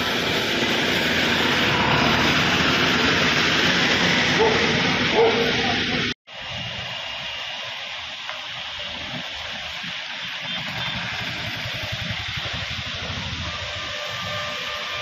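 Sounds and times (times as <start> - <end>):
passing traffic engines: 0.0 - 6.2, 8.2 - 15.0
heavy rain falling: 0.0 - 15.0
vehicles splashing through water: 0.0 - 15.0.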